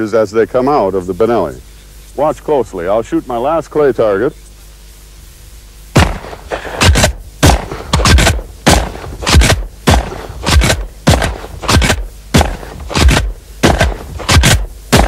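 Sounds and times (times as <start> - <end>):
shotgun shots: 5.9 - 15.0.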